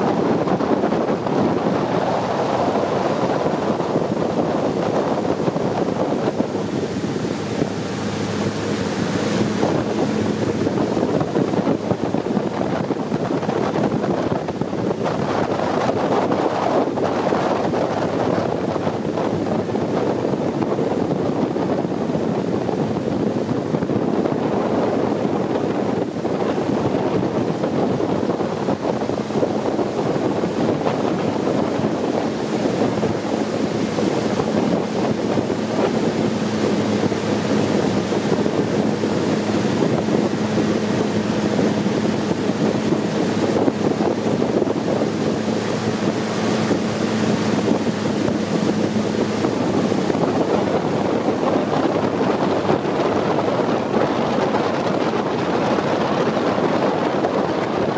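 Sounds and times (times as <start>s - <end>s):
boat engine running: 0.0s - 57.9s
wind buffeting microphone: 0.0s - 57.9s.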